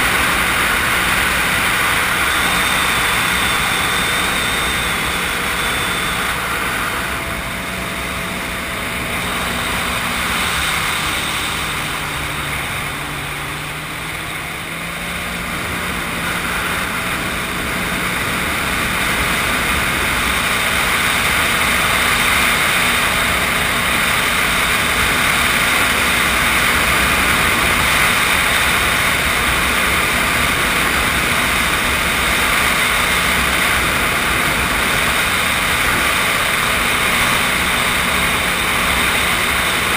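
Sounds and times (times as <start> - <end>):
water rushing: 0.0 - 14.4
watercraft engine drone: 0.0 - 39.9
wind: 0.0 - 39.9.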